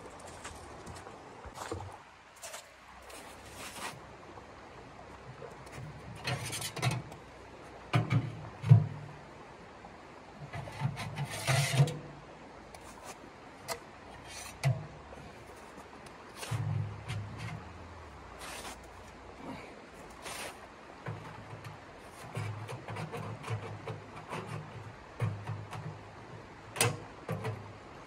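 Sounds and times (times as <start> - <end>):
footsteps crunching on icy snow: 0.0 - 4.0
creek water rushing: 0.0 - 28.0
knocks and clatter of stove pipe: 26.8 - 27.6.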